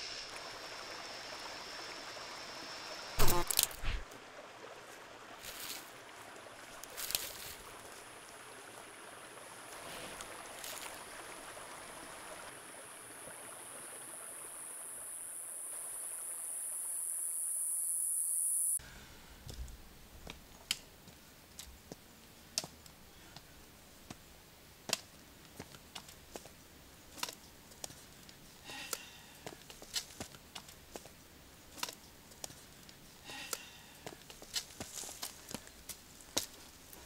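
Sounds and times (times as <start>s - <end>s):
rushing hiss: 0.0s - 4.1s
footsteps on stony path: 3.2s - 4.1s, 34.0s - 37.0s.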